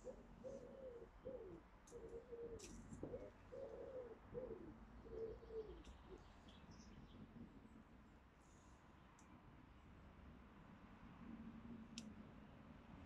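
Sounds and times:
dove cooing: 0:00.0 - 0:06.2.

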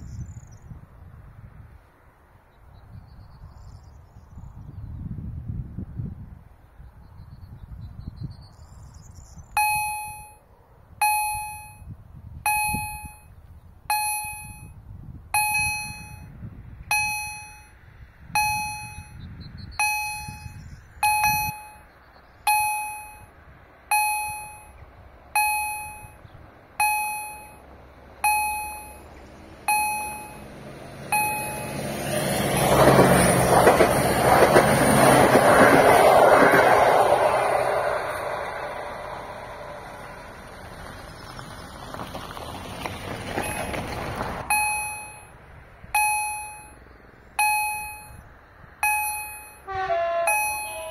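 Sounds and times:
diesel railcar rolling past: 0:00.0 - 0:50.9
level crossing electronic gong: 0:50.3 - 0:50.9.

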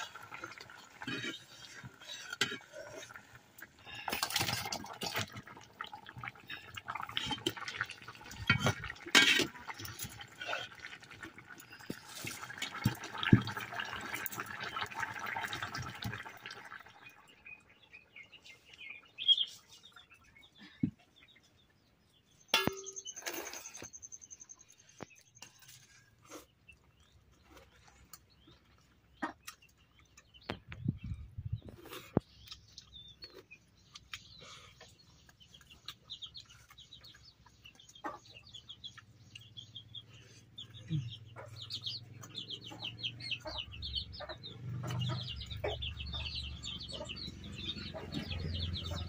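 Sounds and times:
curry bubbling and sloshing: 0:00.0 - 0:17.4.

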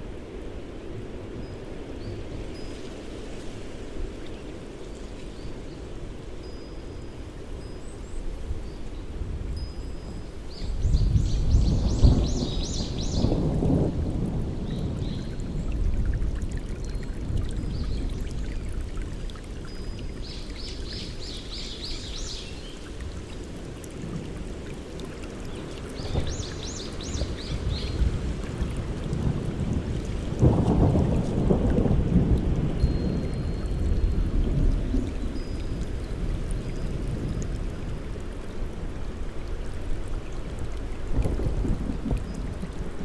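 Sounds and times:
rain falling: 0:00.0 - 0:43.0
thunder rumbling: 0:30.3 - 0:33.4.

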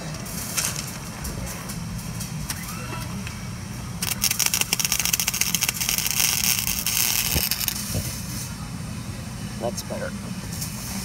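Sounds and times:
low steady hum: 0:00.0 - 0:11.0
welding arc crackling: 0:04.0 - 0:08.4.

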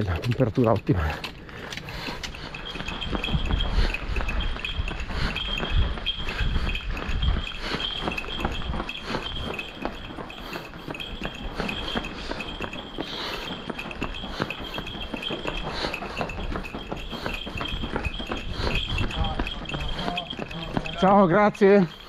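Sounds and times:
running footsteps on cobblestones: 0:00.0 - 0:22.0.

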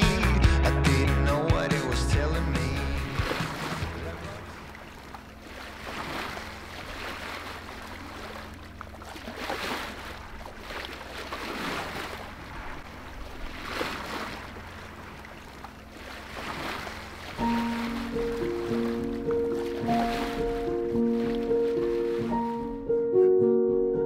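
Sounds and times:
music: 0:00.0 - 0:04.6, 0:17.4 - 0:24.0
steady low rumble: 0:01.3 - 0:09.2, 0:12.0 - 0:22.0
sea water rushing along hull: 0:01.4 - 0:23.0.

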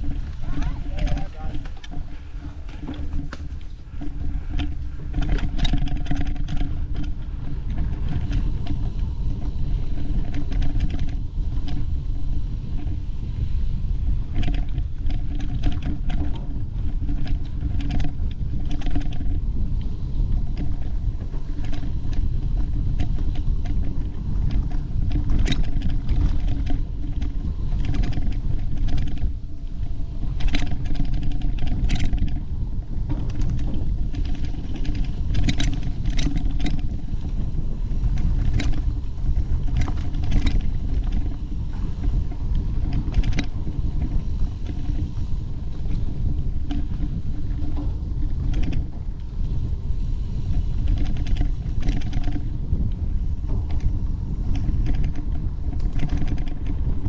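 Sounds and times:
bike rattling over rocky trail: 0:00.0 - 0:57.0
wind rumble on microphone: 0:00.0 - 0:57.0.

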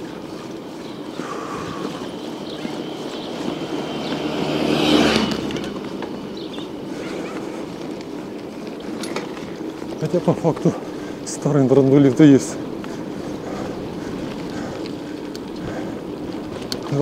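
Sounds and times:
steady riding noise: 0:00.0 - 0:17.0
vehicle passing: 0:00.4 - 0:11.3.

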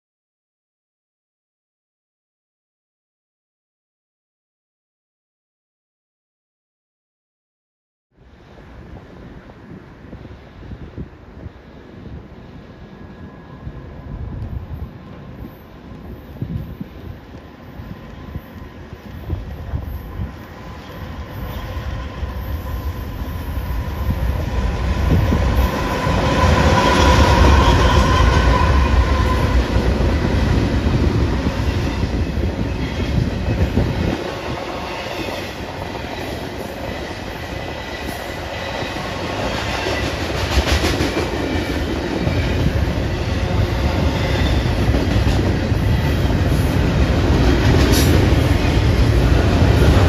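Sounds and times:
diesel locomotive engine whine: 0:08.2 - 0:50.0
train wheels clacking on rails: 0:17.3 - 0:50.0.

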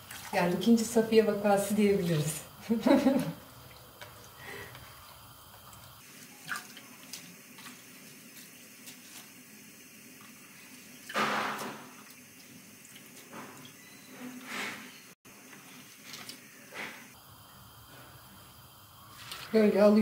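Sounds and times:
water splashes and drips: 0:00.0 - 0:01.0, 0:01.6 - 0:09.4, 0:10.1 - 0:13.8.

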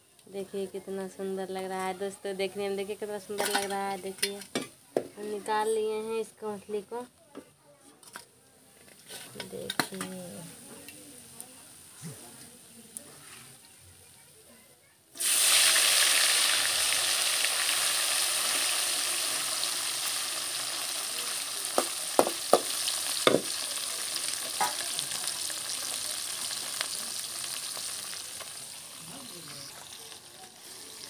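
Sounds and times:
fish sizzling in hot oil: 0:00.6 - 0:04.8, 0:08.9 - 0:13.7, 0:15.1 - 0:31.0
slotted spoon knocking on pan: 0:21.8 - 0:23.6.

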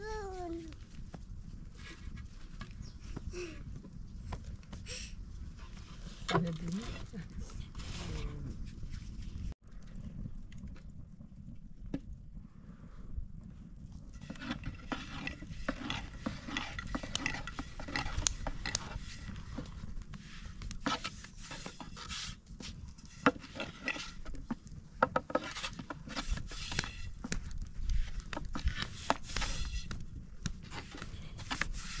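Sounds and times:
rolling pin on wooden board: 0:23.1 - 0:27.0.

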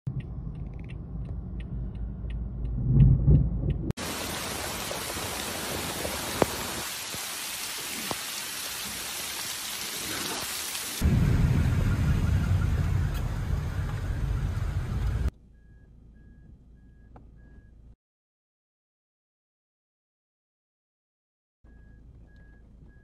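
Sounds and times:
car road rumble from inside: 0:00.1 - 0:04.0, 0:11.0 - 0:17.7
heavy rain pouring: 0:04.0 - 0:15.3.

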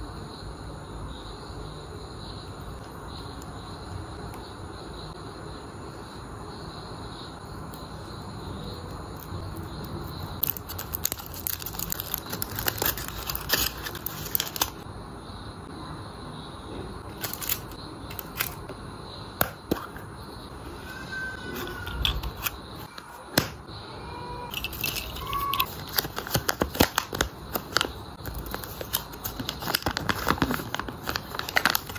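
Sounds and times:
foil wrapper crinkling: 0:10.4 - 0:14.8, 0:17.1 - 0:18.6, 0:24.5 - 0:31.9.

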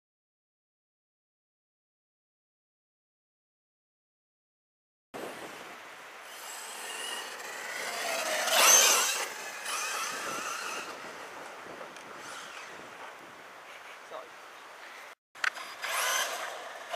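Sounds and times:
electric motor whining: 0:06.2 - 0:13.0, 0:15.4 - 0:16.9.

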